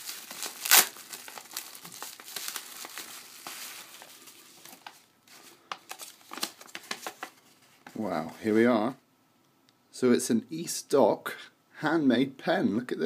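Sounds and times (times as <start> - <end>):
bubble wrap and paper crinkling: 0.0 - 8.4.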